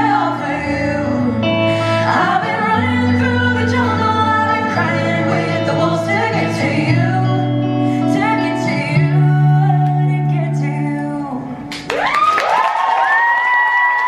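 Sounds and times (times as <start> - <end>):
woman singing: 0.0 - 11.8
electric guitar: 0.0 - 14.0
audience whooping and cheering: 11.9 - 14.0.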